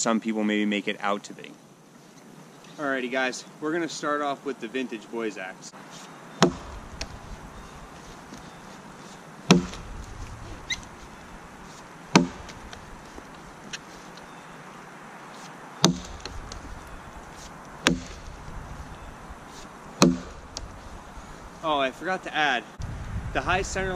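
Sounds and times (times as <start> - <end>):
axe chopping into log: 6.4 - 7.2, 9.5 - 9.9, 12.1 - 12.8, 15.8 - 16.8, 17.8 - 18.4, 20.0 - 20.7.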